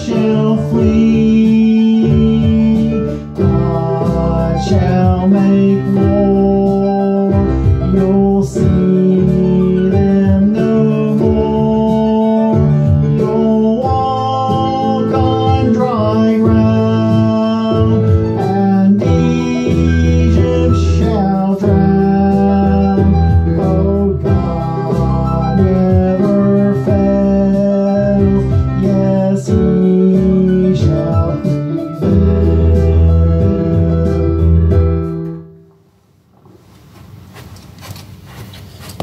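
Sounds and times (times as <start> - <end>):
steady bass: 0.0 - 35.4
electronic keyboard chords: 0.0 - 35.8.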